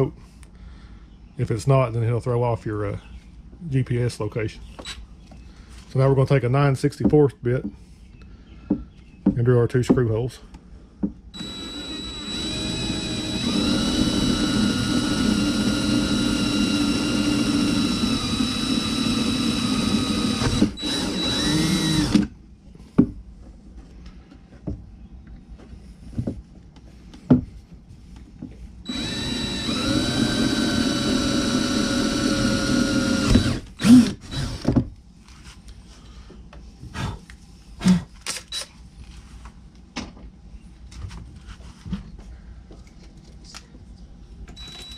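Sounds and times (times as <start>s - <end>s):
cordless drill whining: 11.4s - 22.3s, 28.9s - 34.7s, 44.6s - 44.9s.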